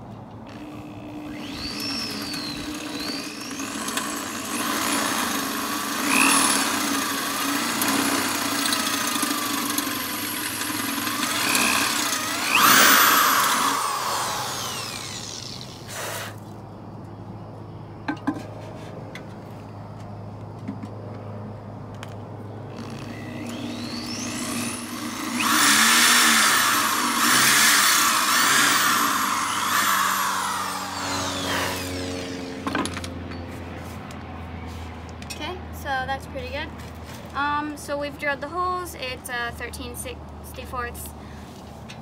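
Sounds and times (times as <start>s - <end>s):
electric drill motor whine: 0.5s - 16.1s, 22.7s - 33.0s.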